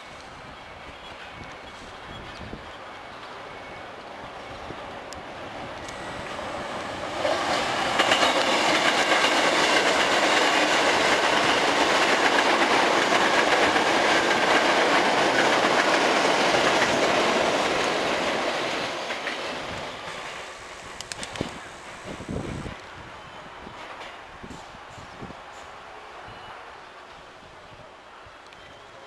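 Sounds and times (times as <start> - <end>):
electric train passing: 0.0 - 27.6
wheels clattering over rail joints: 6.4 - 20.5.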